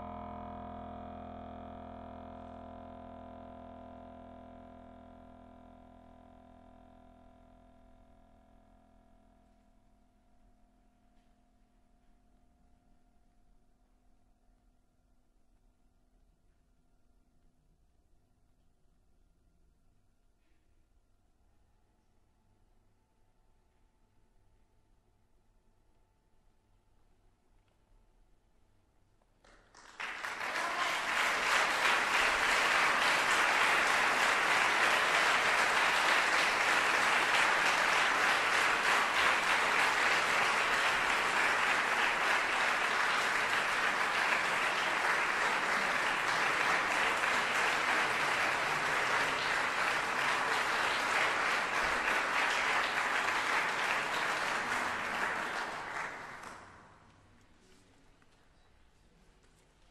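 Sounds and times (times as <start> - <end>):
audience applauding: 29.5 - 56.9.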